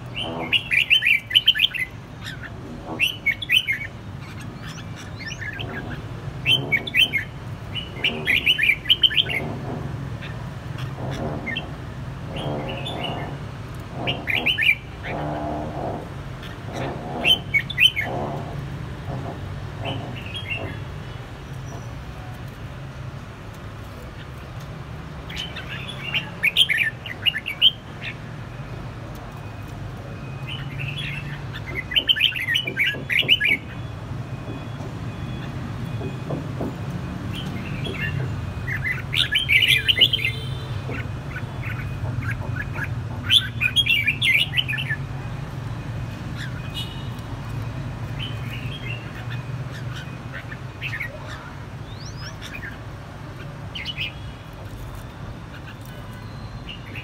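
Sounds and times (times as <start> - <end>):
birds chattering song: 0.0 - 57.0.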